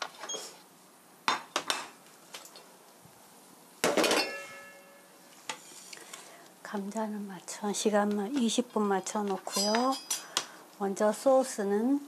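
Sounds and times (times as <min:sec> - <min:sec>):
dishes and utensils clattering: 0:03.8 - 0:05.7, 0:09.0 - 0:10.3.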